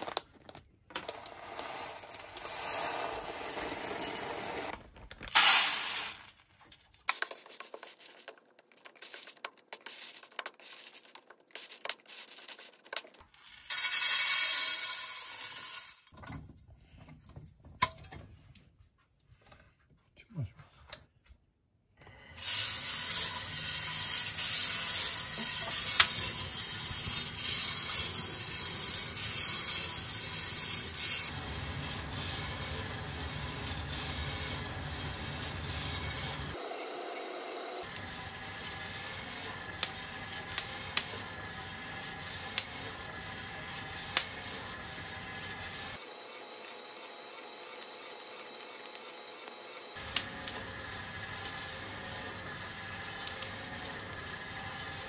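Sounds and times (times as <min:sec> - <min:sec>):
roaster drum hiss and whir: 0:22.4 - 0:55.0.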